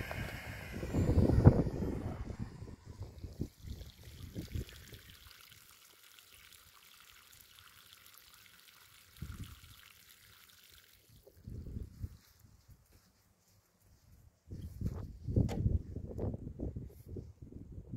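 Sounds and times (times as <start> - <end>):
water pouring onto grass: 3.2 - 11.5.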